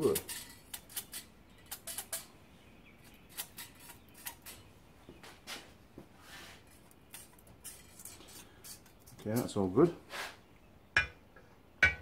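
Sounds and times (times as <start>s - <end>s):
metal-on-metal scrapes: 0.0s - 2.3s, 3.0s - 4.6s, 6.2s - 10.4s.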